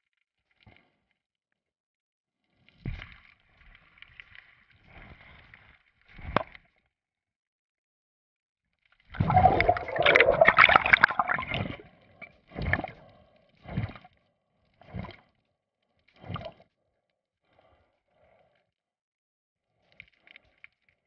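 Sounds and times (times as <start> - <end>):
water splashing: 9.1 - 11.9.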